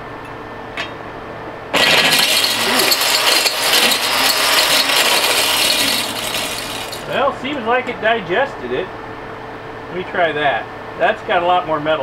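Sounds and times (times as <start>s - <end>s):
hammers shredding connector: 1.8s - 7.2s
hammer-mill crusher running: 1.8s - 7.3s.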